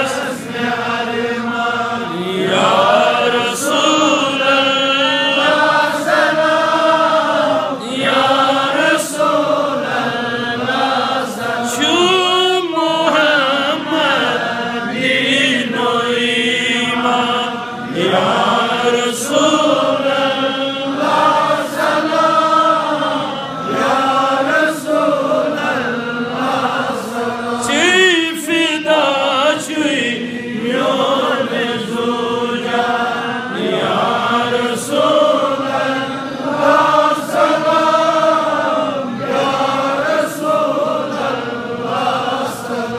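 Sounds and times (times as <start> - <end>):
man chanting: 0.0 - 6.1, 7.7 - 21.5, 26.9 - 37.2.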